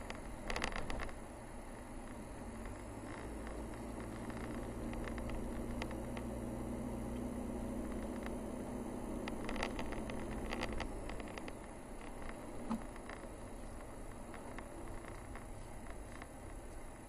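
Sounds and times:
light clicks and rattles: 0.0s - 1.2s, 2.1s - 6.3s, 9.2s - 17.0s
car engine and road noise: 0.0s - 17.0s.

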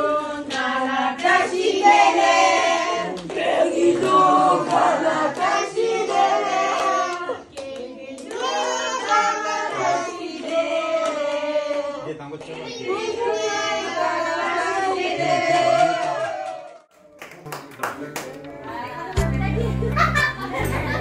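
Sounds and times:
children and adults singing: 0.0s - 16.6s
hand clapping: 16.4s - 18.5s.

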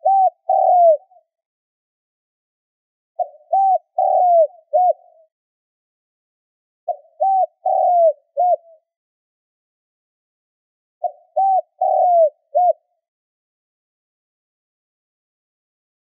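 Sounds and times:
dove cooing: 0.0s - 1.3s, 3.2s - 5.3s, 6.9s - 8.8s, 11.0s - 12.9s.

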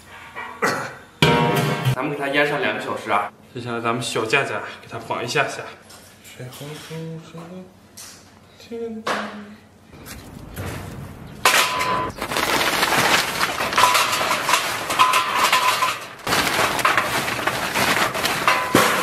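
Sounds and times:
charcoal clattering onto metal trays: 11.4s - 19.0s.

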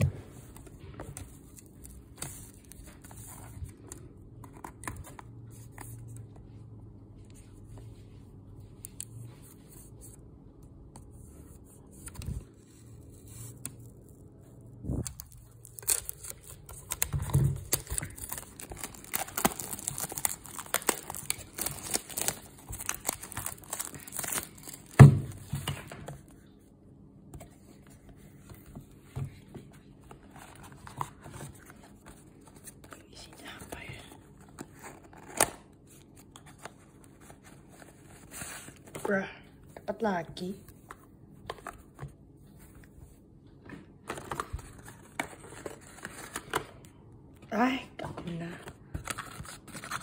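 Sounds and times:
plastic wrap crinkling and tearing: 14.8s - 25.5s.

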